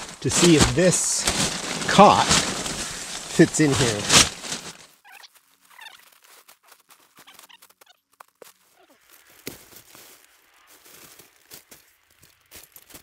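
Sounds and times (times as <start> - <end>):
camp cot handling rustles: 0.0 - 4.8.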